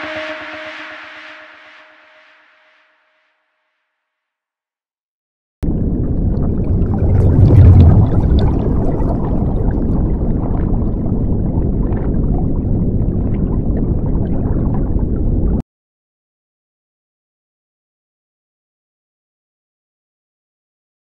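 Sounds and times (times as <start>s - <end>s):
underwater rush with bubbling: 5.7s - 15.6s.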